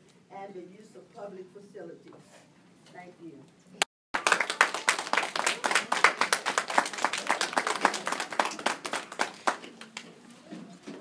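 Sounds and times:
audience clapping: 0:04.2 - 0:10.2.

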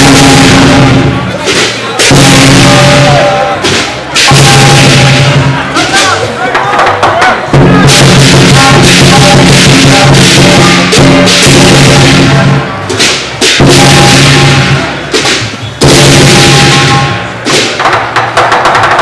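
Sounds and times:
big drum: 0:00.0 - 0:19.0
cymbals clashing: 0:00.0 - 0:19.0
gong: 0:04.2 - 0:05.6, 0:07.6 - 0:12.8, 0:13.6 - 0:15.0, 0:15.8 - 0:17.3.

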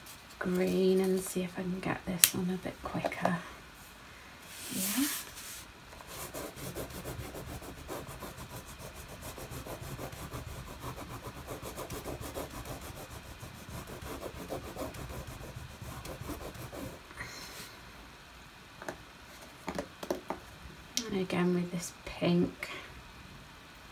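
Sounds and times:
crayon scratching on paper: 0:06.0 - 0:17.0.

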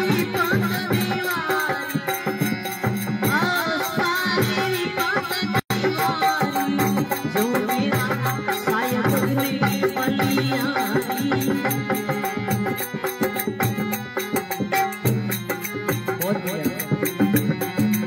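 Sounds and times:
man singing: 0:00.0 - 0:12.3
harmonium chords: 0:00.0 - 0:18.0
percussion beat: 0:00.0 - 0:18.0.

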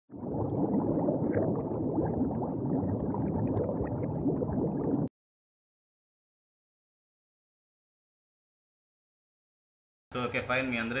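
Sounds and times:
water bubbling and gurgling: 0:00.1 - 0:05.1.

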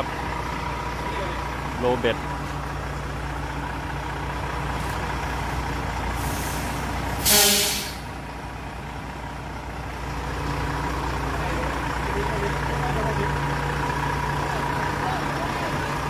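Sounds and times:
diesel truck engine idling: 0:00.0 - 0:16.0
air brake hiss: 0:06.2 - 0:08.1.

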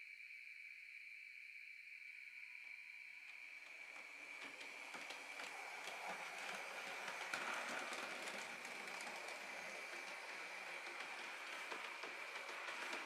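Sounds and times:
model train wheels clicking: 0:03.3 - 0:13.0.

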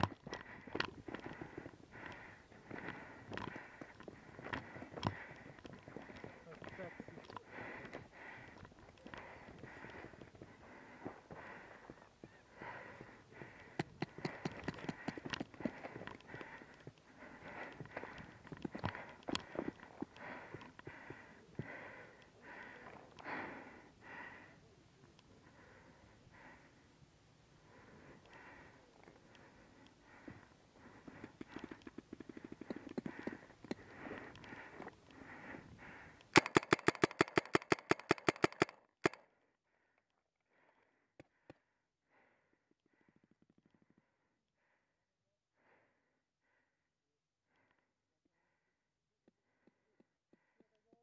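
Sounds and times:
person breathing fast: 0:00.0 - 0:51.0
paintball marker firing: 0:36.4 - 0:39.2.

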